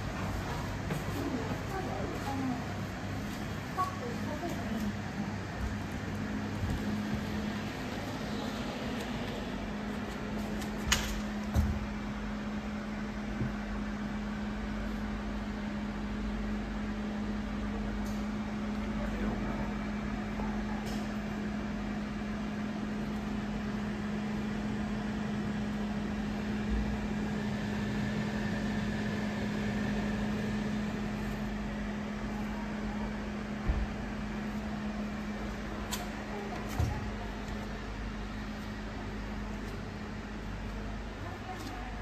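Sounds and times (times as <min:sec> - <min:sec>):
ventilation hum: 0:00.0 - 0:42.0.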